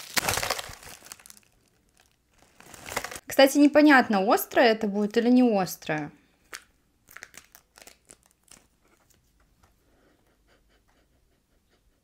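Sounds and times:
plastic sachet tearing: 0.0 - 3.2, 6.5 - 8.9
packet crinkling: 0.0 - 3.3, 6.5 - 9.2.

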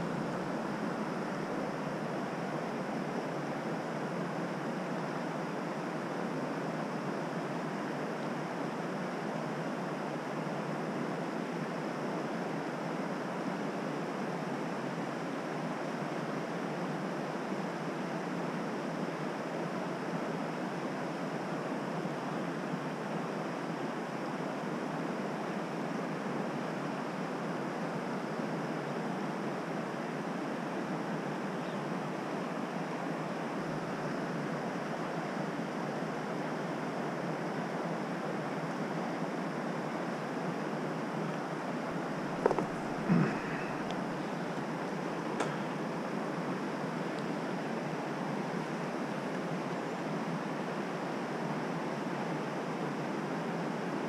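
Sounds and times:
stream water flowing: 32.3 - 52.2.

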